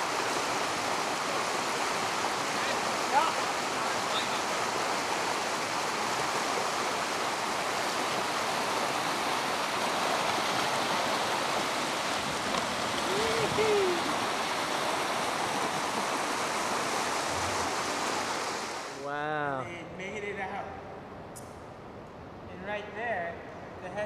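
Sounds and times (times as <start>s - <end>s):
river water rushing: 0.0s - 19.6s.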